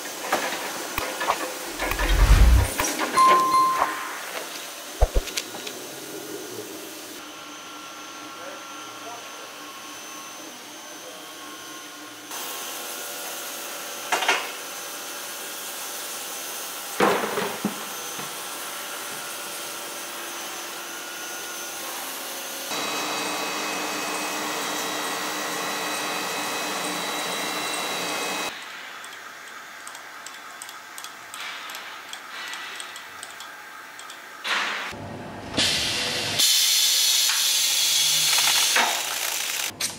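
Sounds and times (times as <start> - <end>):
machinery humming and whining: 1.5 - 2.9, 22.7 - 28.5.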